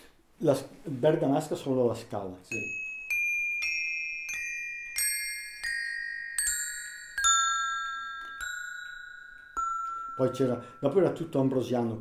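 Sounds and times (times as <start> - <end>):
iron bars ringing like bells: 2.5 - 12.0.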